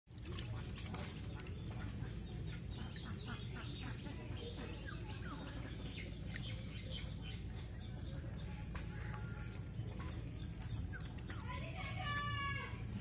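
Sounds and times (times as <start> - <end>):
water sloshing in steel bowl: 0.1 - 6.4, 10.0 - 12.4
bird chirps: 1.1 - 11.8.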